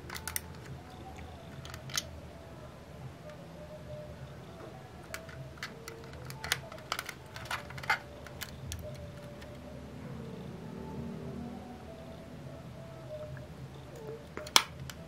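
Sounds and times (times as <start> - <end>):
clicks of toy car being handled: 1.6 - 2.1, 5.1 - 9.5, 14.4 - 15.0.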